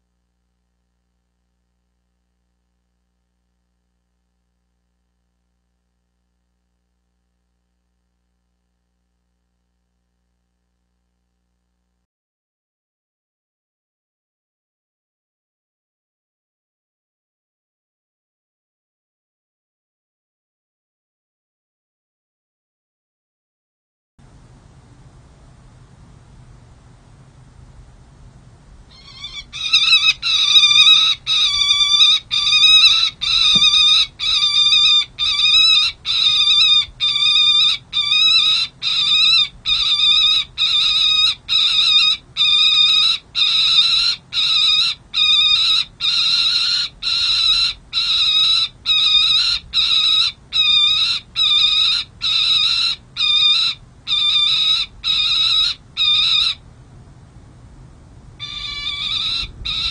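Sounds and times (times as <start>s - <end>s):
falcon calling harsh notes: 28.9s - 56.6s, 58.4s - 59.9s.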